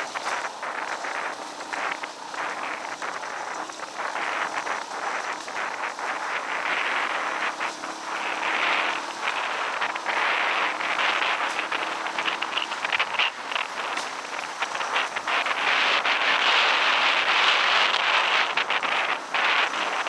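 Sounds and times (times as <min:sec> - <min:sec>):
faint motorcycle engine: 0:00.0 - 0:20.0
wind buffeting microphone: 0:00.0 - 0:20.0.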